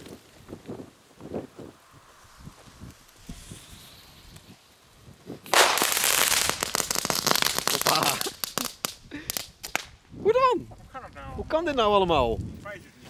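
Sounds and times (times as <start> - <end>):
firework crackling: 0.0 - 10.0.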